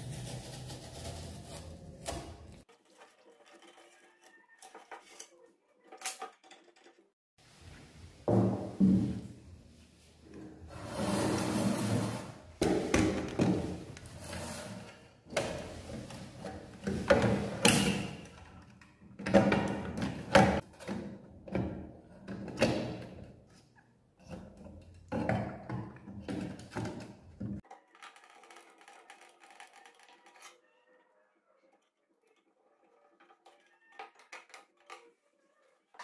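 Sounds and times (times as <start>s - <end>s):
plastic and metal parts clattering: 0.1s - 7.1s, 24.2s - 30.9s, 31.7s - 36.0s.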